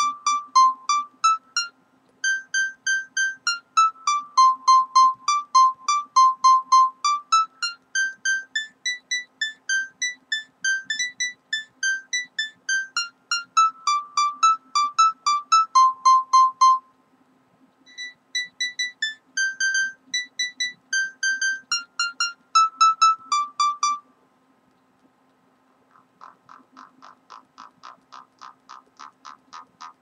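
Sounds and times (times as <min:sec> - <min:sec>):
electronic beeping melody: 0:00.0 - 0:16.9, 0:17.9 - 0:24.0.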